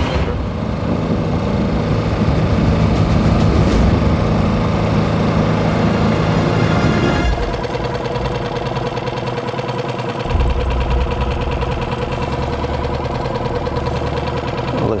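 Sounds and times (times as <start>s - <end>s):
boat motor humming: 4.2s - 15.0s.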